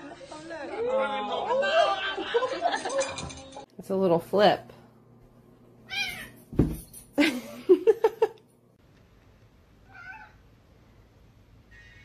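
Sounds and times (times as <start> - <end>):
cat meowing: 5.9 - 6.4, 9.8 - 10.4
thud: 6.5 - 7.0.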